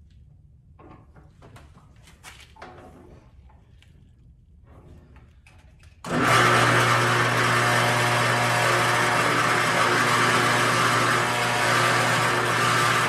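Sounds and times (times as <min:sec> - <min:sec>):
electric motor humming and whirring: 0:06.0 - 0:13.0.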